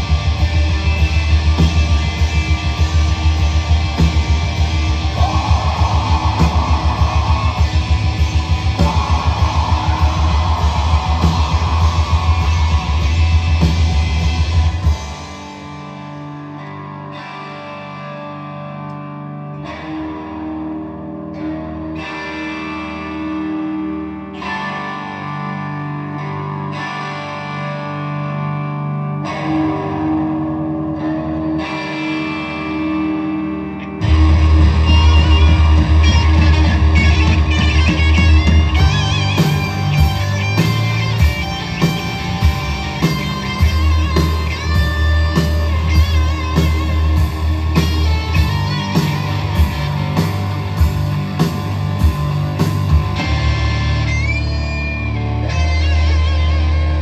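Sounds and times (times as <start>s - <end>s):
heavy music with deep low end: 0.0s - 16.1s, 33.9s - 57.0s
electric guitar chords: 0.0s - 57.0s.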